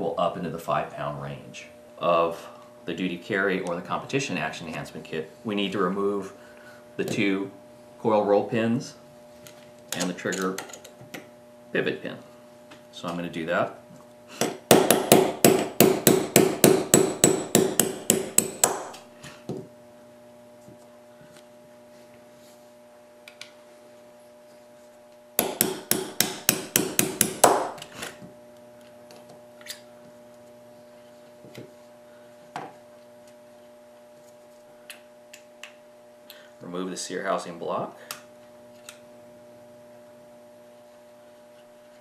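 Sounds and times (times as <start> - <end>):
hammer tapping pin punch: 14.4 - 19.0, 25.4 - 27.8.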